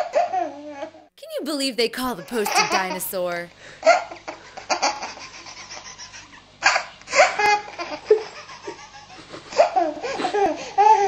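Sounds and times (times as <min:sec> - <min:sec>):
baby laughing: 0:02.2 - 0:03.0, 0:03.8 - 0:11.0.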